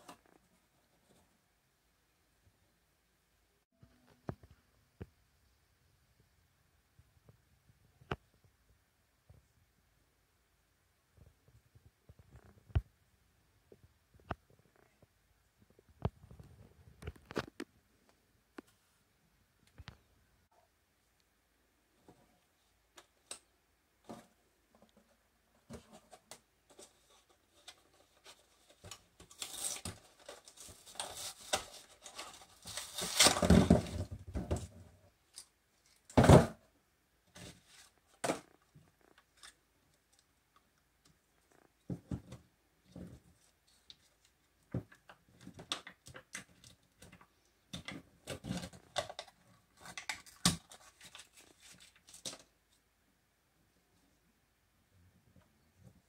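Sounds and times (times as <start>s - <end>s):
paperboard rustling and tearing: 26.7s - 34.0s, 48.2s - 52.5s.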